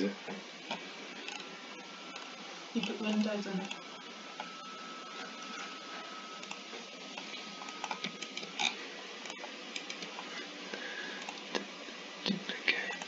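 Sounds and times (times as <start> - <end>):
room hiss: 0.0 - 13.0
computer mouse clicks: 7.2 - 10.3, 11.2 - 11.7.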